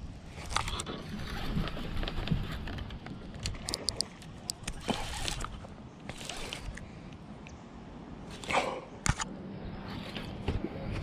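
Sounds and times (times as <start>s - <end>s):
low wind rumble on microphone: 0.0s - 4.1s
fishing gear clicks and knocks: 0.4s - 6.8s.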